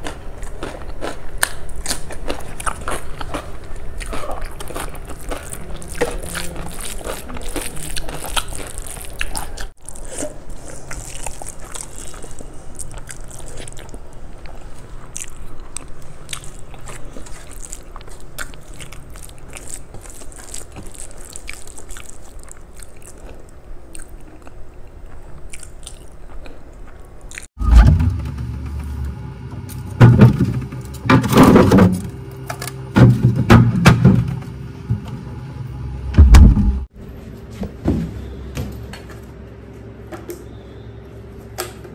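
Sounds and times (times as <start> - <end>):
chewing and wet mouth sounds: 0.0 - 27.6
loud bumps and knocks: 30.0 - 32.1, 33.0 - 35.1, 36.1 - 36.9.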